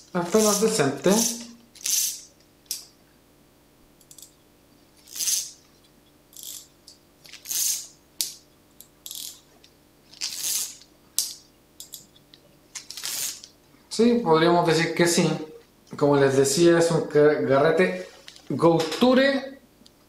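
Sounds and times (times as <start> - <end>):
fishing reel clicker ratcheting: 9.0 - 9.4.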